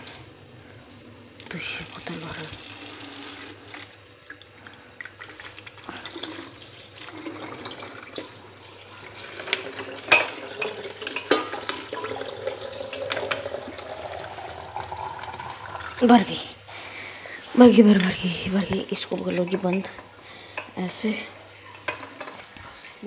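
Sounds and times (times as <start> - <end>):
water filling plastic bottle: 1.4 - 16.2.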